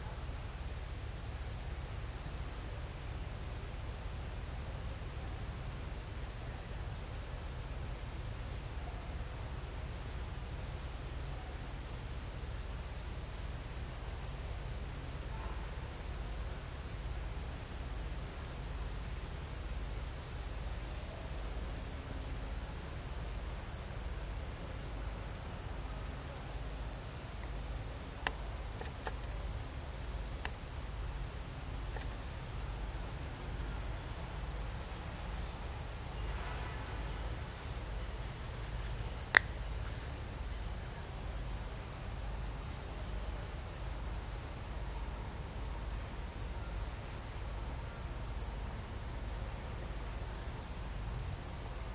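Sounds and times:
insect chirping: 14.4 - 34.6, 35.4 - 36.3, 36.9 - 51.9.

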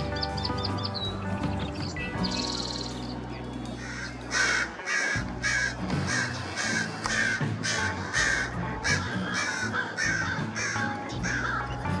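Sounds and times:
background music with low tones: 0.0 - 12.0
harsh animal calls: 3.8 - 12.0.

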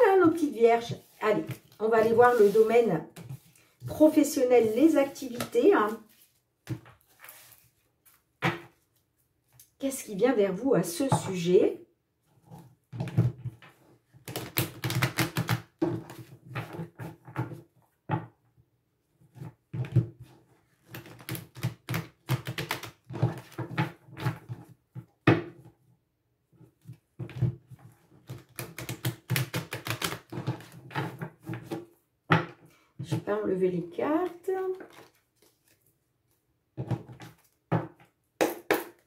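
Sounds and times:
cards being shuffled: 34.8 - 35.9.

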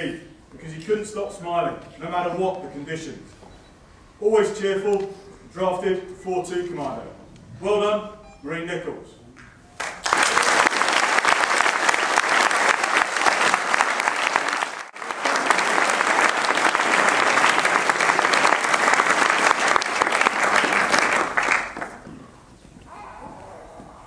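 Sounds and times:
audience applauding: 9.8 - 22.1.

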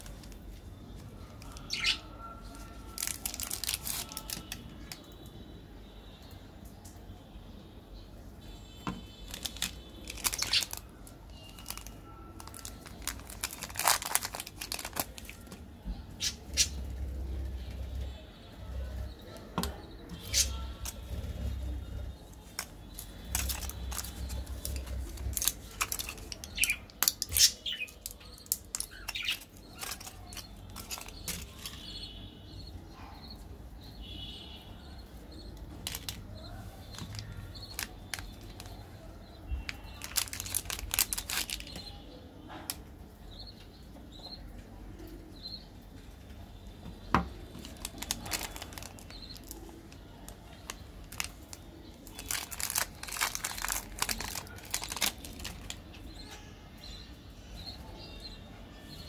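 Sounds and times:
blister pack crinkling: 0.0 - 0.6, 1.3 - 5.0, 9.0 - 15.6, 20.2 - 32.0, 35.7 - 38.8, 39.5 - 42.0, 47.5 - 55.9
candy wrappers crinkling: 0.0 - 5.1, 8.9 - 16.7, 19.6 - 32.2, 35.6 - 42.0, 47.4 - 56.1.

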